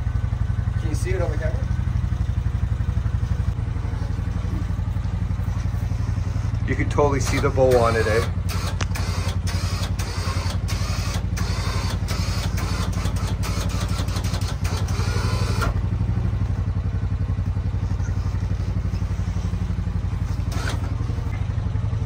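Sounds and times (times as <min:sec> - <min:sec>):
engine idling: 0:00.0 - 0:22.0
sharp clicks: 0:07.2 - 0:11.2.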